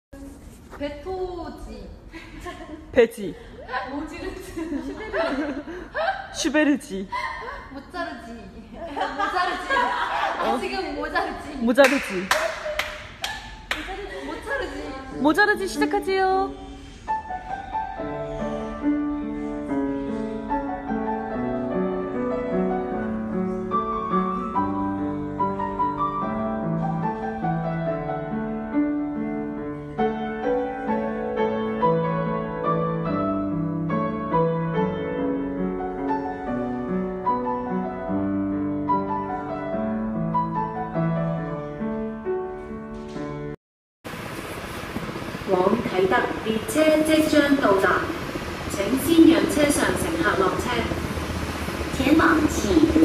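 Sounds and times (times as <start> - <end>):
solo grand piano piece: 15.6 - 43.6.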